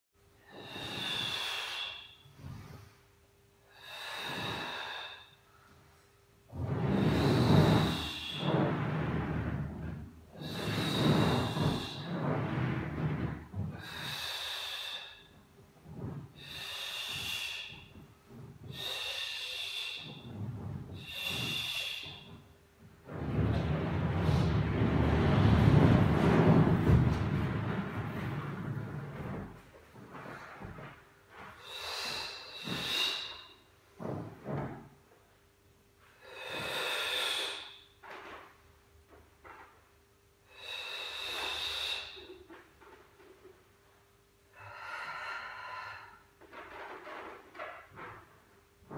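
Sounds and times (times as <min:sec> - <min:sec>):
person breathing with effort: 0:00.4 - 0:02.9, 0:03.6 - 0:05.6, 0:10.3 - 0:15.4, 0:16.3 - 0:22.4, 0:31.6 - 0:33.7, 0:36.2 - 0:37.8, 0:40.5 - 0:42.5, 0:44.5 - 0:46.4.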